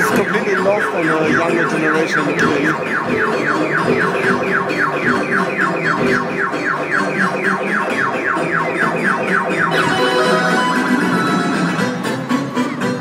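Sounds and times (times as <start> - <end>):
synthesized falling chirps: 0.0 - 11.8
sustained electronic tones: 0.0 - 12.0.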